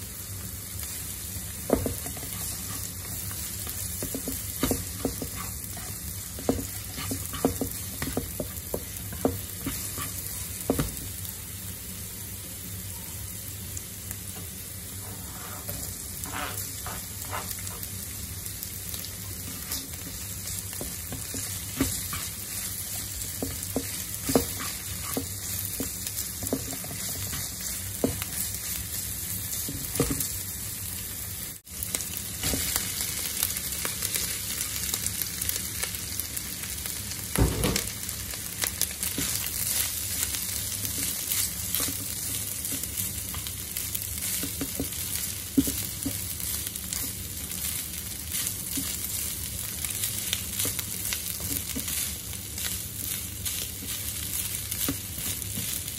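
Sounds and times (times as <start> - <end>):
oil sizzling in a frying pan: 0.0 - 55.9
spatula scraping a pan: 1.7 - 10.4, 15.0 - 17.9, 20.7 - 28.6.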